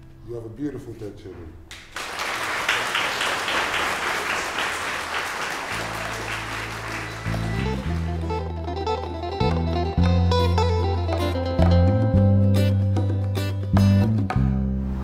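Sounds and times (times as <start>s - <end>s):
children clapping: 1.7s - 8.5s
music with bass and guitar: 5.8s - 15.0s.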